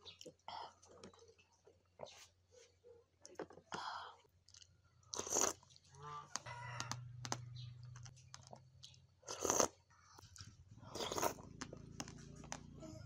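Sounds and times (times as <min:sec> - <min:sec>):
crunching and chewing seeds: 0:04.4 - 0:12.8
slurping juice: 0:04.5 - 0:05.9, 0:09.2 - 0:09.9, 0:10.8 - 0:12.2.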